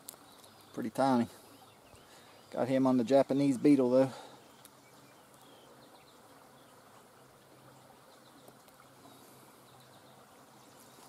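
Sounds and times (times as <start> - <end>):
faint insect buzz: 3.3 - 11.0.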